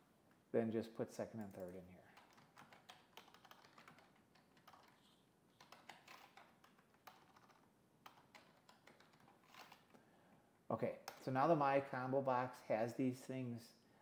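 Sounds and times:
faint keyboard typing: 1.1s - 10.0s.

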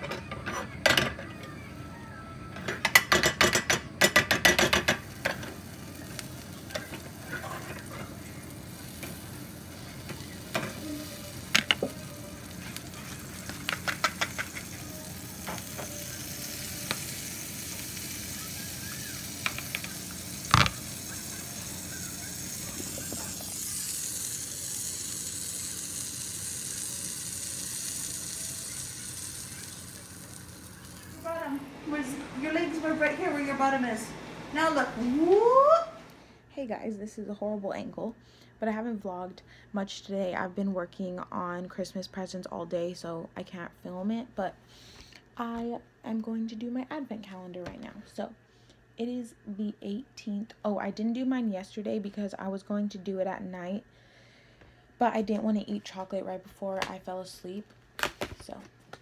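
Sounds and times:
batter sizzling in a pan: 4.2s - 31.6s.

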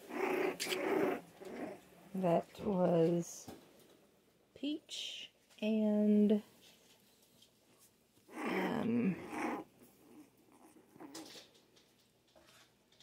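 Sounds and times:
puppy growling: 0.0s - 1.8s, 8.3s - 11.6s.

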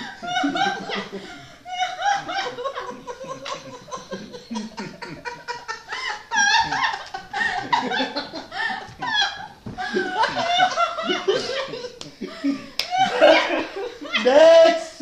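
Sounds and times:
people laughing: 0.0s - 15.0s.

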